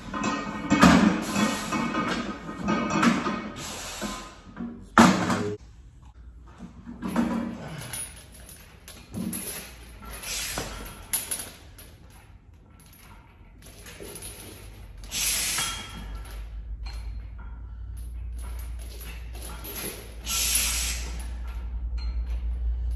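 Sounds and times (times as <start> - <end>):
forceful breaths and grunts: 7.3 - 8.3.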